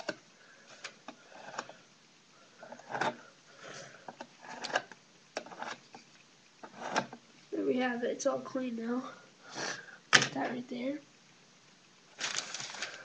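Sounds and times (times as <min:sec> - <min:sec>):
stir stick scraping paint can: 0:02.6 - 0:07.2.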